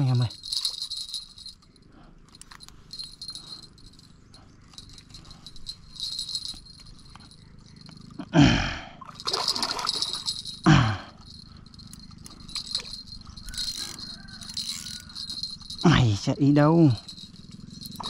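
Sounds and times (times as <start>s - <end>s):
fishing reel drag clicking: 11.9s - 15.8s.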